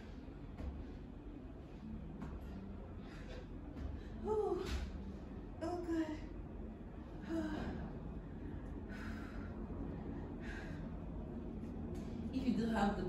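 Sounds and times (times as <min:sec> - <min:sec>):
low steady hum: 0:00.0 - 0:13.0
woman breathing hard: 0:02.6 - 0:04.4, 0:07.1 - 0:11.5.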